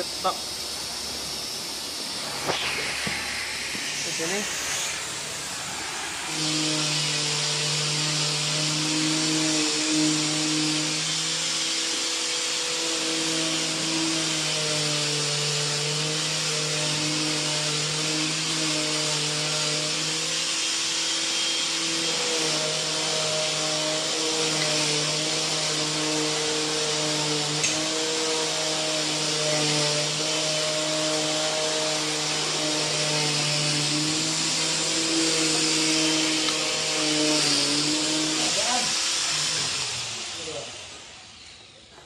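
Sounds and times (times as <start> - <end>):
motor-driven machine humming: 0.0 - 10.4.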